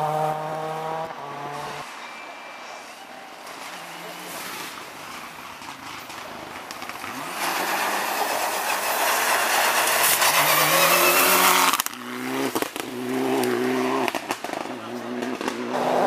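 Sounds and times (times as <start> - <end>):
rally car engine revving: 0.0 - 1.8, 6.1 - 16.0
tyres hissing on gravel: 1.9 - 14.5.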